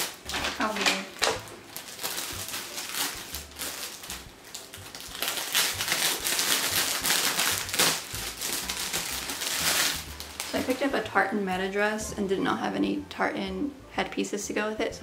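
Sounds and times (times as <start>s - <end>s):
plastic packaging crinkling: 0.0s - 11.1s.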